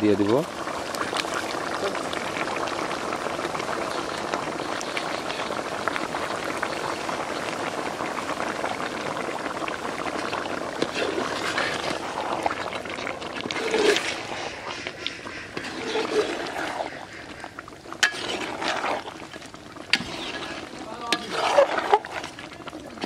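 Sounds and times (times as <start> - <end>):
curry bubbling in metal pot: 0.0 - 23.0
metal ladle scraping pot: 10.7 - 23.0.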